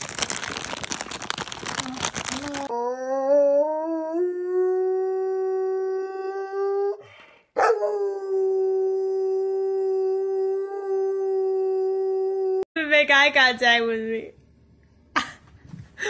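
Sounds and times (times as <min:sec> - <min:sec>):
dog howling: 0:02.7 - 0:07.0, 0:07.6 - 0:12.6.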